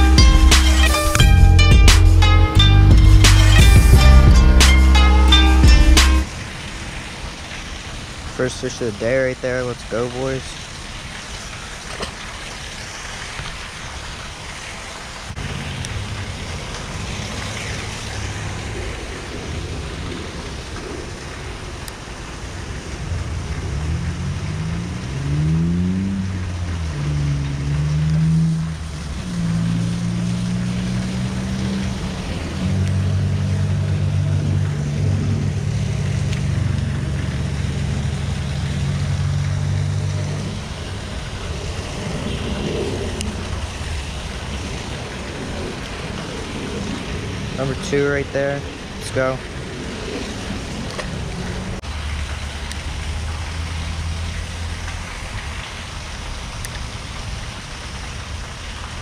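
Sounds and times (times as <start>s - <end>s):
low motor hum: 0.0s - 6.3s, 22.6s - 47.6s
wind on microphone: 40.2s - 51.8s.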